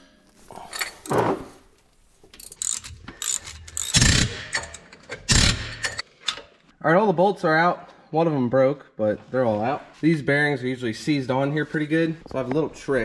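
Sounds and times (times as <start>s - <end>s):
ratchet wrench clicking: 2.4s - 6.0s.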